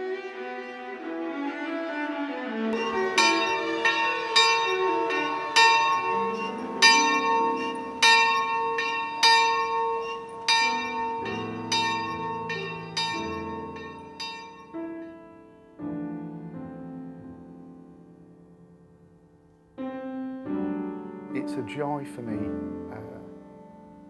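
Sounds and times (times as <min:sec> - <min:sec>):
church bells ringing: 0:02.8 - 0:15.0.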